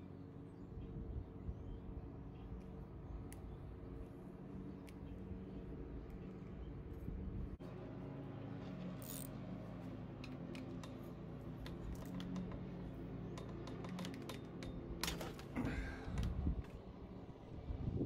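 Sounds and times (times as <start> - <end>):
ratchet wrench clicking: 9.0 - 9.3.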